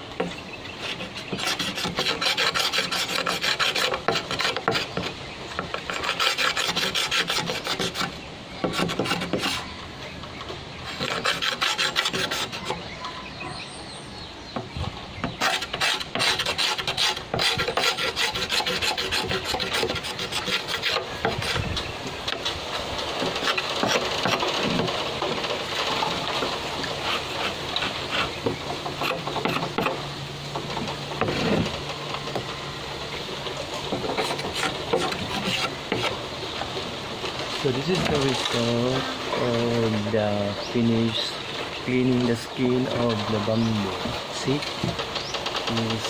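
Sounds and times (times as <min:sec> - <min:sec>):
knife scraping bamboo: 0:00.0 - 0:09.8, 0:10.8 - 0:13.0, 0:14.6 - 0:22.6, 0:23.2 - 0:30.0, 0:30.6 - 0:32.5, 0:33.7 - 0:40.6.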